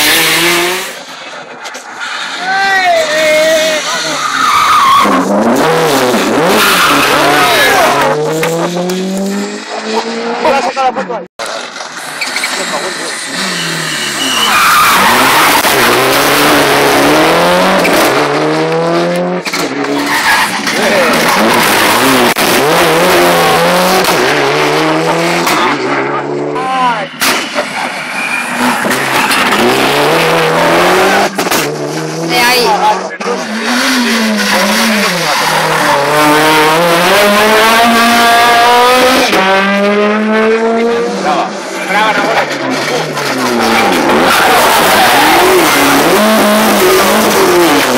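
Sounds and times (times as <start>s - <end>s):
car engine accelerating hard: 5.0s - 10.6s, 11.7s - 26.8s, 27.6s - 47.9s.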